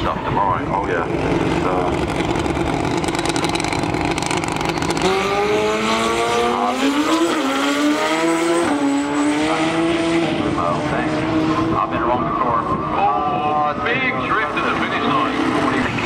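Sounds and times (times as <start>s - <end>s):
motorcycle engine revving: 0.6s - 16.0s
motorcycle accelerating away: 0.8s - 16.0s.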